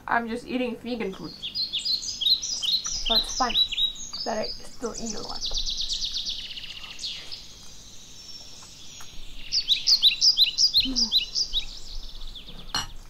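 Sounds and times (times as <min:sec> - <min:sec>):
songbird singing: 0:00.0 - 0:13.0.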